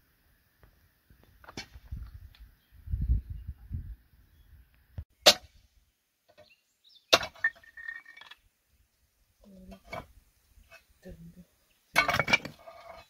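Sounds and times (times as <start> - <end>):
stone pieces clinking and scraping: 7.2 - 8.4, 12.0 - 13.0
pry bar clanking on stone: 12.0 - 13.0.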